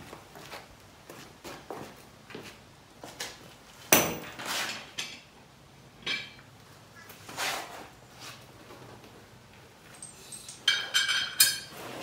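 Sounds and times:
metal tools clanking on mower deck: 9.9s - 11.9s.

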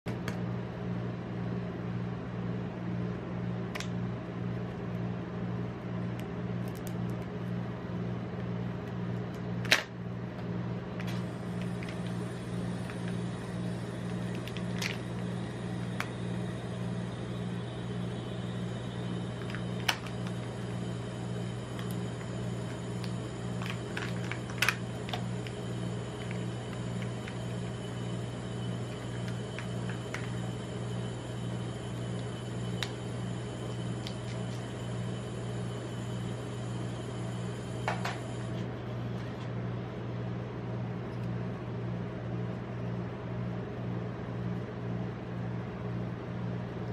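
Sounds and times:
refrigeration unit humming: 0.1s - 46.9s
plastic clicks and crinkles: 23.0s - 25.5s.

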